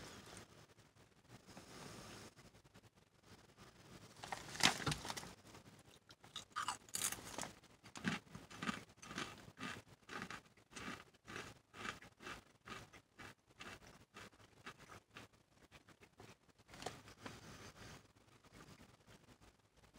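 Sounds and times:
person crunching chips: 6.0s - 15.2s.

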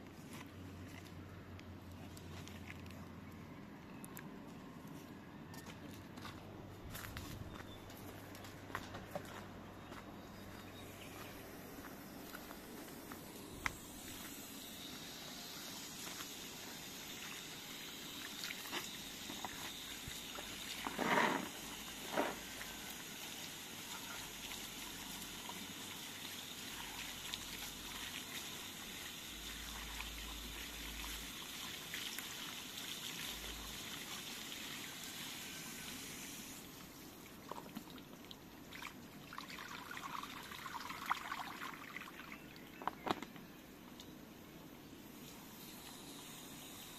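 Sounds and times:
water pouring from hose into basin: 13.7s - 42.7s.

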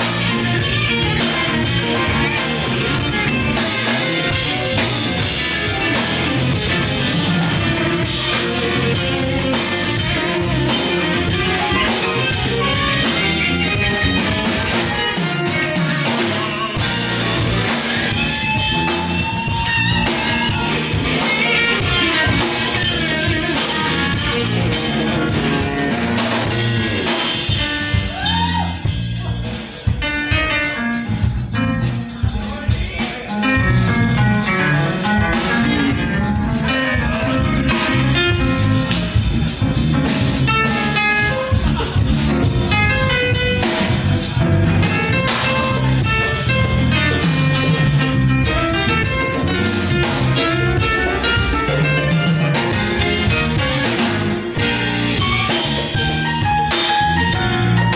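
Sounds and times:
drum kit beat: 0.0s - 57.9s
electric guitar: 0.0s - 57.9s
live band playing: 0.0s - 57.9s.

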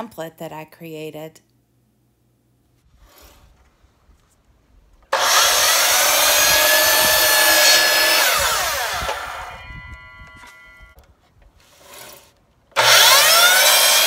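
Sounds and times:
miter saw cutting plank: 5.1s - 10.7s, 11.6s - 14.0s
saw blade winding down whine: 5.1s - 11.0s, 12.8s - 14.0s.

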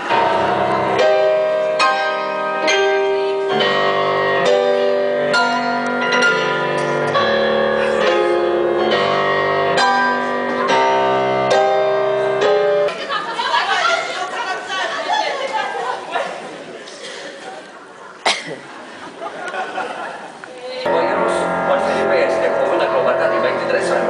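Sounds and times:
upright piano playing chords: 0.0s - 12.9s, 20.9s - 24.0s.

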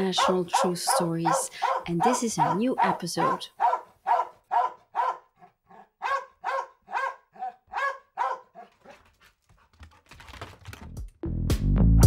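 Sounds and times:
dog barking: 0.0s - 9.1s.

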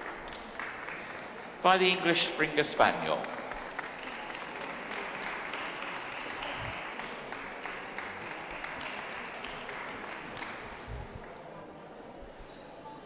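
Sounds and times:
audience applauding: 0.0s - 2.2s, 2.8s - 11.5s.

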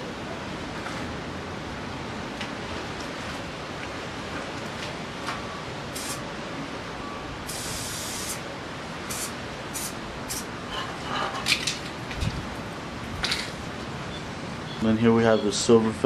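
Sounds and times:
spray paint can hissing: 6.0s - 6.2s, 7.5s - 8.4s, 9.1s - 10.5s.

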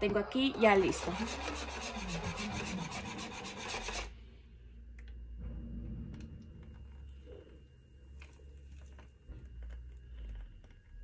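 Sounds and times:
whisk scraping in plastic bowl: 0.6s - 4.1s.

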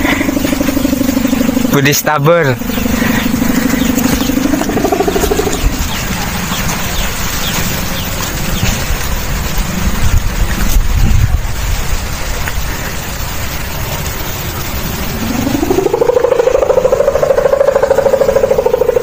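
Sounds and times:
buzzing tone rising in pitch: 0.0s - 7.0s, 13.7s - 19.0s
kite hummer drone: 0.0s - 19.0s
wind buffeting microphone: 0.0s - 19.0s.

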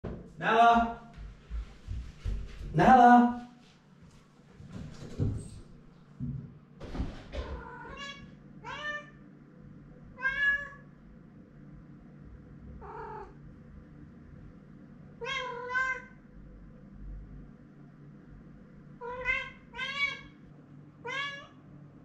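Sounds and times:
cat meowing: 7.6s - 9.2s, 10.1s - 10.9s, 12.8s - 13.4s, 15.2s - 16.2s, 19.0s - 20.4s, 21.0s - 21.6s.

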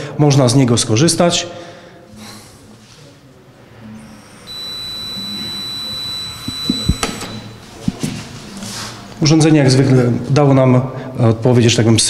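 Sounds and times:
steady high-pitched tone: 3.8s - 7.8s
click: 6.4s - 7.5s.

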